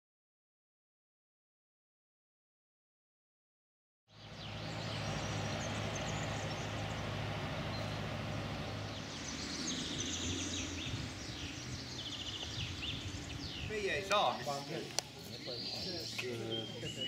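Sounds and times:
birds chirping: 4.1s - 17.0s.

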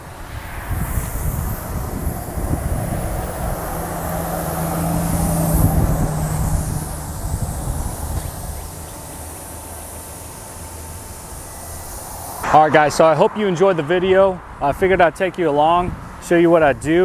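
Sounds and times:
outdoor rumble: 0.0s - 16.3s
wind buffeting microphone: 0.0s - 17.0s
low motor hum: 0.7s - 13.0s.

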